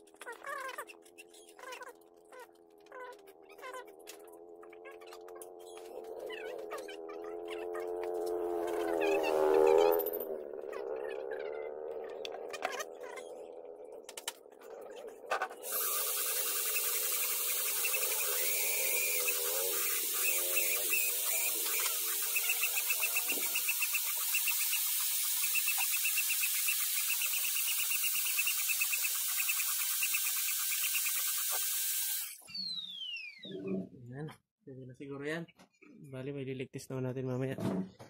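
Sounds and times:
workshop tool hissing: 0:15.6 - 0:32.4.

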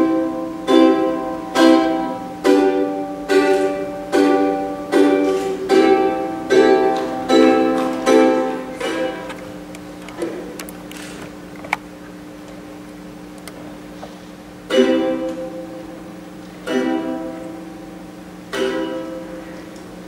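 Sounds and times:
string instrument strummed chords: 0:00.0 - 0:09.4.

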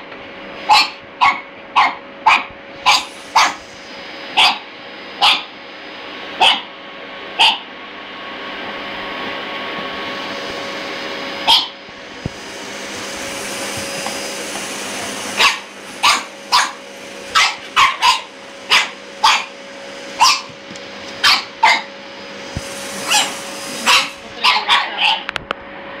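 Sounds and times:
vacuum cleaner humming: 0:00.0 - 0:26.0
puppy barking: 0:00.6 - 0:03.6, 0:04.4 - 0:05.5, 0:06.4 - 0:06.7, 0:07.4 - 0:07.7, 0:11.4 - 0:11.8, 0:15.4 - 0:19.6, 0:20.2 - 0:20.6, 0:21.2 - 0:21.9, 0:23.0 - 0:25.3.

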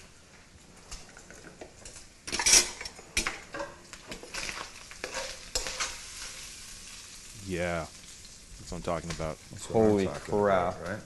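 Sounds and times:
bacon sizzling in a wok: 0:00.9 - 0:11.0
metal spoon scraping a pan: 0:02.3 - 0:06.6.

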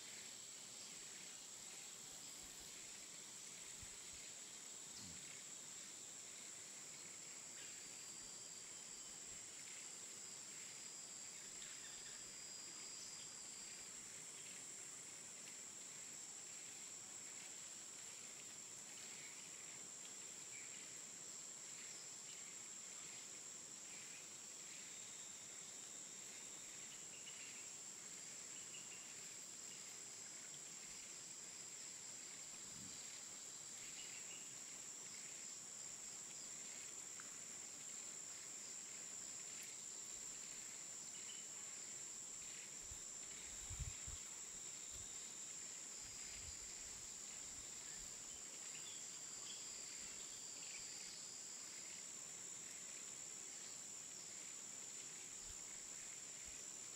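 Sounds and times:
insects droning: 0:00.0 - 0:56.9
soft hiss: 0:00.0 - 0:56.9.

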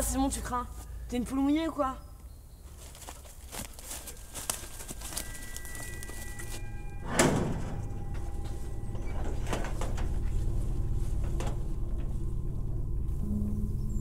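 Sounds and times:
low steady rumble: 0:05.8 - 0:14.0
metal sliding door clank: 0:06.8 - 0:12.2.

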